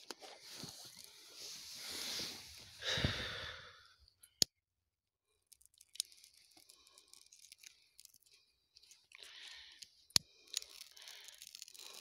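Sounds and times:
rustling and crunching of snow and twigs: 0.0 - 2.8
faint crackles: 5.5 - 12.0.

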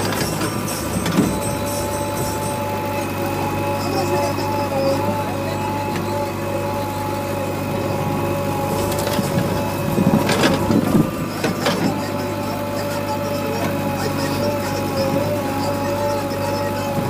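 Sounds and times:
metal clanks: 0.0 - 4.4
diesel engine whining under load: 0.0 - 17.0.

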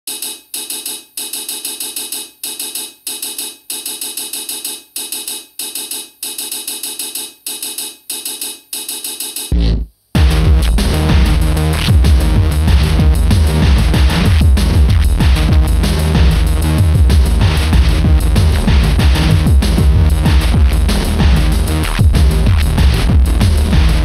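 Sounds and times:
stuttering synth pattern: 8.8 - 24.0
dance track with heavy bass: 9.5 - 24.0.

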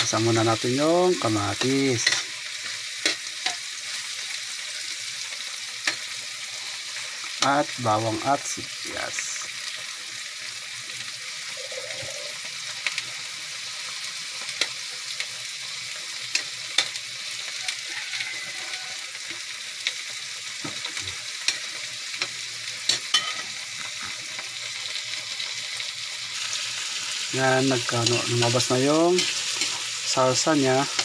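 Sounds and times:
food sizzling in a wok: 0.0 - 31.0
metal ladle scraping a wok: 29.2 - 29.9.

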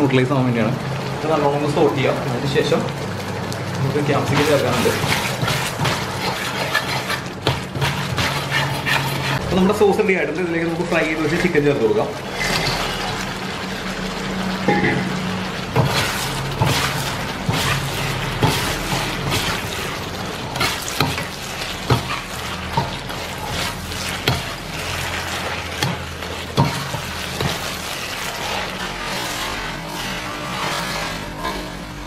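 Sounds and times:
chicken sizzling in a wok: 0.0 - 32.0
metal spatula scraping a wok: 4.1 - 9.5, 12.2 - 13.2, 15.8 - 32.0.

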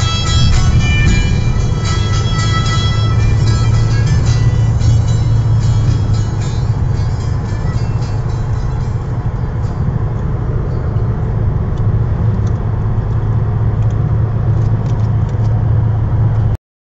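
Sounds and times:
car engine and tyre drone: 0.0 - 16.6.

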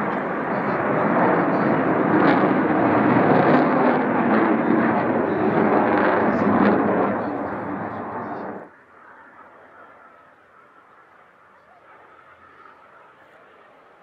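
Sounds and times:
jet engine crackles: 0.0 - 8.7
jet engine rumble: 0.0 - 14.0.

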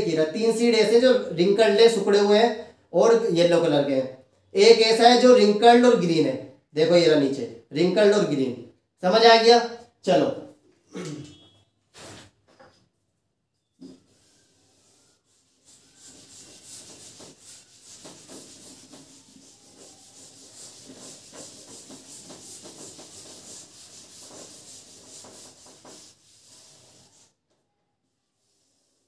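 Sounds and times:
scratchy rubbing on board: 13.8 - 27.3.

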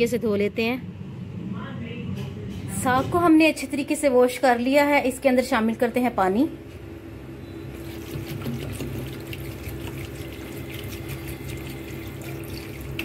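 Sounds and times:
water pouring into a metal pot: 7.8 - 13.0.

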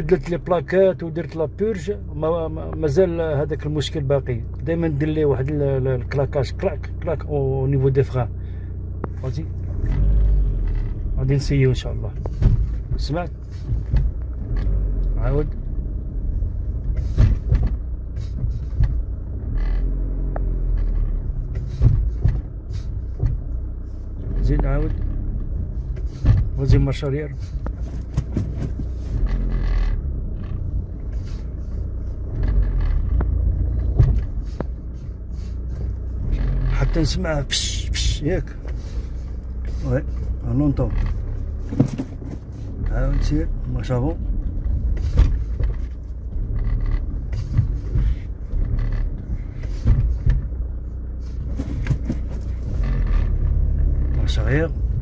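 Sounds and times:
car engine idling: 0.0 - 55.0
sharp brake clicking knocks: 11.9 - 15.1, 16.6 - 23.8, 24.4 - 37.1, 41.0 - 42.9, 44.4 - 55.0.

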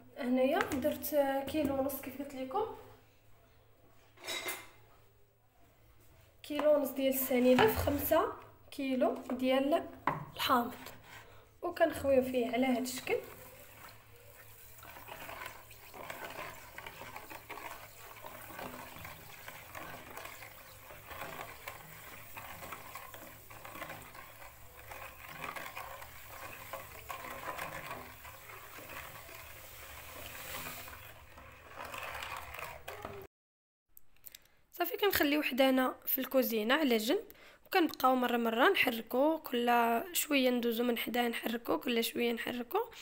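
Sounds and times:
spoon stirring liquid in bowl: 0.6 - 2.3, 6.5 - 33.3
sugar pouring: 12.6 - 33.2.

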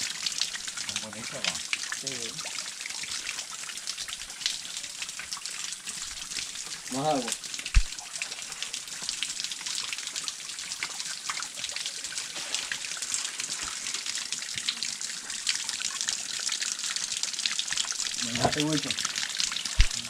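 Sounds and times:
spring water trickling and splashing: 0.0 - 20.0.

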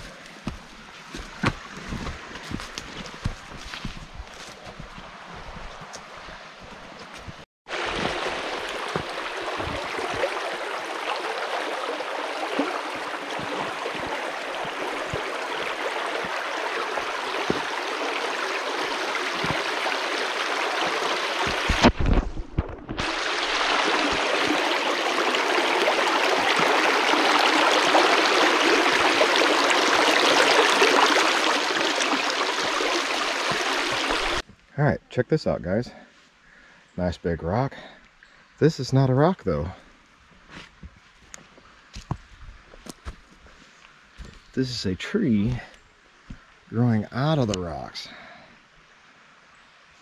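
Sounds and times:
creek water rushing over stones: 7.7 - 34.4.

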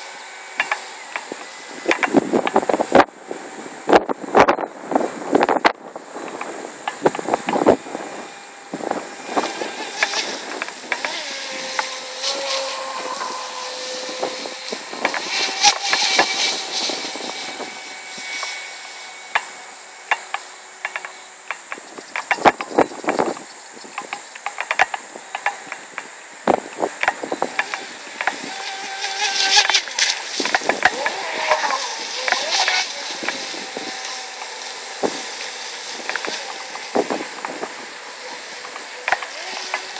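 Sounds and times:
sharp clicks: 0.0 - 3.1
electric motor boat whining: 0.0 - 39.9
high insect drone: 0.0 - 39.9
short crackles: 5.3 - 23.4, 26.5 - 39.9.

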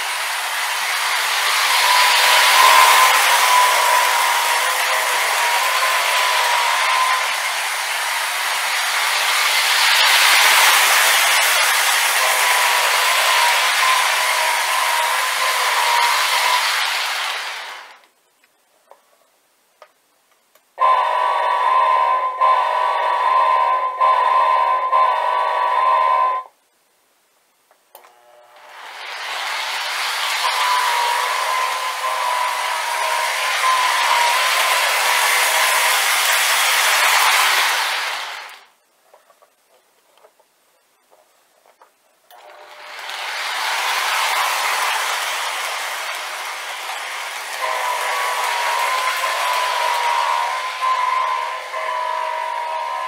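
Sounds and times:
model train diesel horn: 1.5 - 8.4, 11.1 - 16.9, 20.8 - 26.5, 28.1 - 28.8, 30.4 - 38.0, 42.4 - 53.0.

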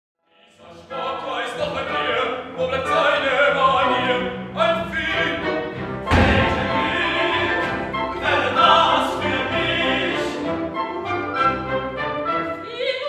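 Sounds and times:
opera singing voices: 0.3 - 11.5, 12.2 - 13.0
chamber orchestra strings: 0.5 - 13.0
heavy low thump: 6.0 - 8.0.

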